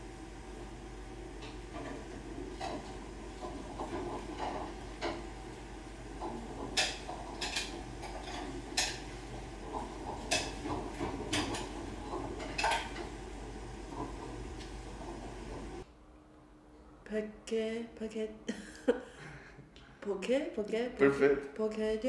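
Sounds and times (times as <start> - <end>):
dishes and pots clinking: 1.4 - 5.3, 6.2 - 13.2.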